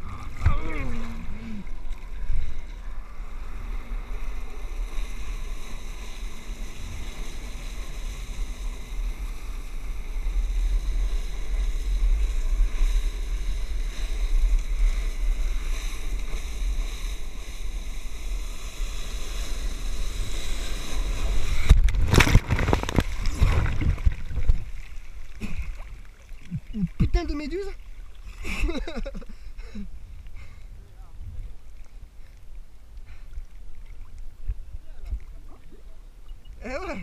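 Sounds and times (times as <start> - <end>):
loud churning splash: 17.6 - 26.4
wind buffeting microphone: 19.7 - 24.8.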